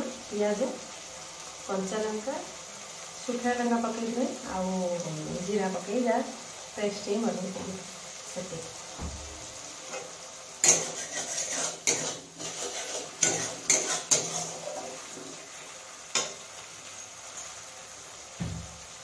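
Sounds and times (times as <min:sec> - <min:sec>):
spices sizzling: 0:00.0 - 0:19.0
spatula scraping metal pan: 0:09.9 - 0:15.2.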